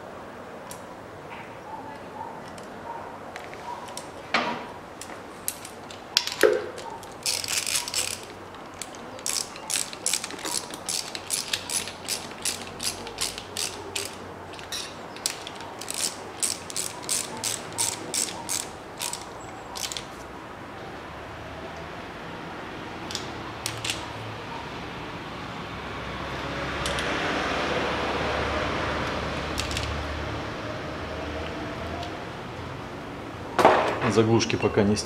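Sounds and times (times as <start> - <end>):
ratchet wrench clicking: 5.0 - 20.1, 23.1 - 24.1, 29.5 - 30.0.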